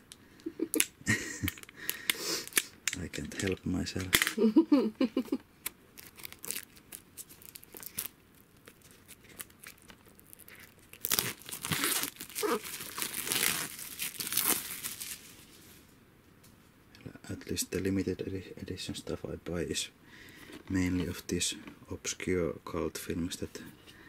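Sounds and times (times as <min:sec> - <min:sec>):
plastic wrap tearing and crinkling: 0:06.0 - 0:15.4.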